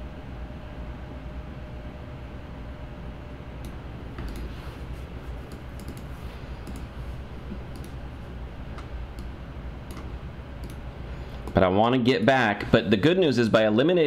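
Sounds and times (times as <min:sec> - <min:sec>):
low background hum: 0:00.0 - 0:14.0
computer mouse clicking: 0:03.6 - 0:04.5, 0:05.5 - 0:07.0, 0:07.7 - 0:08.0, 0:08.8 - 0:10.8, 0:11.4 - 0:11.6.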